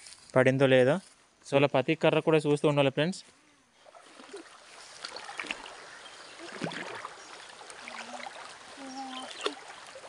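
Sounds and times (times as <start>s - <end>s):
water sloshing around legs: 3.8s - 10.0s
small splashes and clicks: 4.0s - 5.8s, 6.4s - 10.0s.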